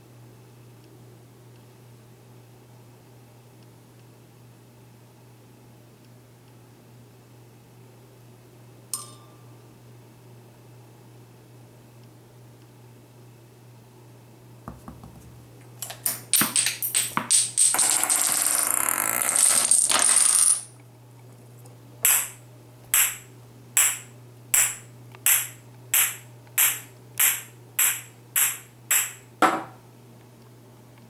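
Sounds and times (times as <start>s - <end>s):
objects clicking and clattering: 15.8s - 18.5s.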